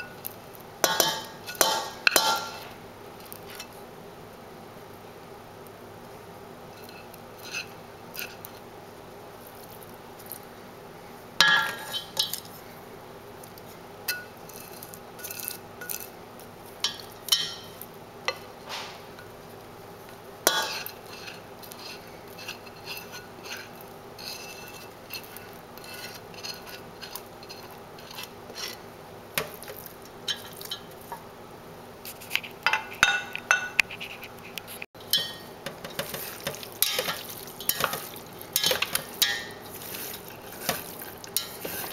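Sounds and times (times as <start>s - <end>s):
wooden utensils scraping a pan: 6.8s - 8.6s, 20.5s - 28.9s, 32.1s - 41.9s
chopsticks clinking in a pot: 11.4s - 12.5s, 16.8s - 18.4s, 30.3s - 31.0s, 35.0s - 41.9s.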